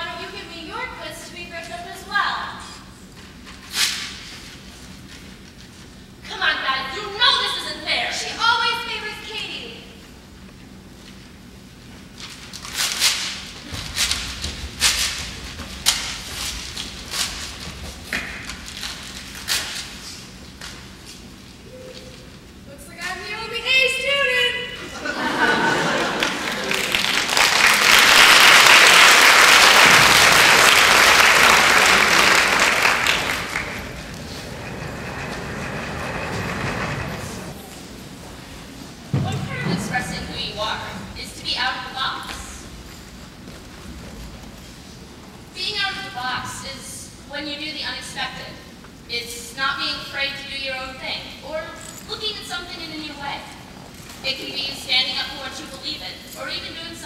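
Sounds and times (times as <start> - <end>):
performers moving on stage: 25.0 - 45.6
audience applauding: 25.6 - 37.5
low rumble: 33.0 - 37.6.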